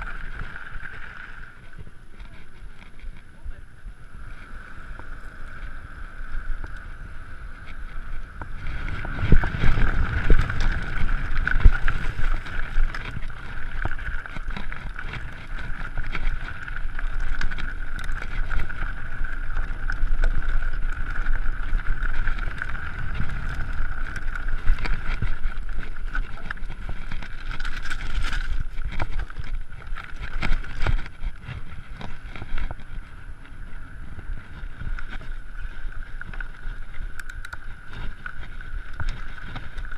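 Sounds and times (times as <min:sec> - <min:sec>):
bike tyre and frame rumble: 0:00.0 - 0:39.9
wind buffeting microphone: 0:00.0 - 0:39.9
rattles and knocks over bumps: 0:19.6 - 0:33.1.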